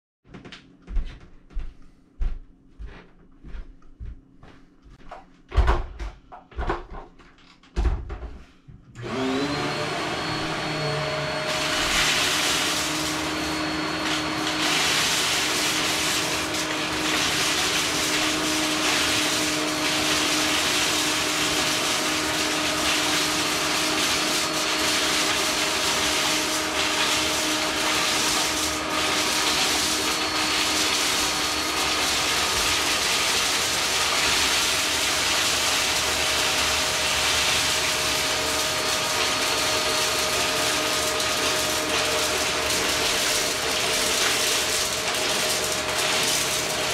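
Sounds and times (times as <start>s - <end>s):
vacuum cleaner motor whining: 9.0s - 46.9s.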